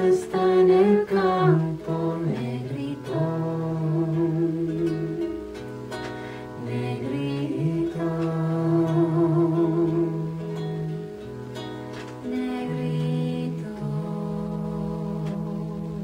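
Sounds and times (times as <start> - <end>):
woman humming: 0.0 - 5.6, 6.6 - 11.0, 12.2 - 16.0
acoustic guitar lullaby: 0.0 - 16.0.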